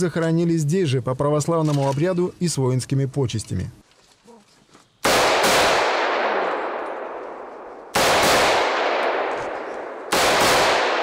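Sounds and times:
rifle shots with echo: 5.0s - 11.0s.

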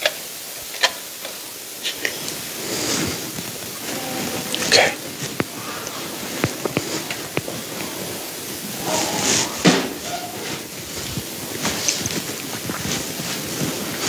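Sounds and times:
steady hiss: 0.0s - 14.0s
rustle with a knock: 2.1s - 14.0s.

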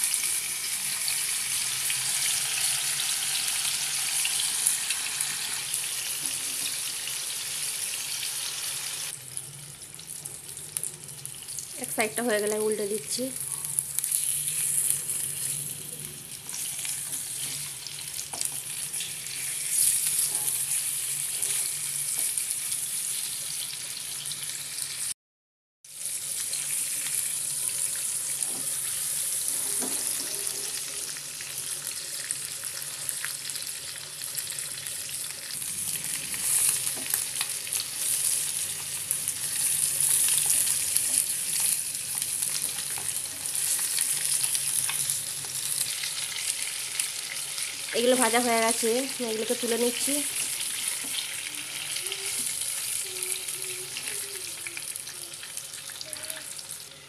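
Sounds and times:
fish sizzling in hot oil: 0.0s - 25.2s, 25.9s - 57.0s.

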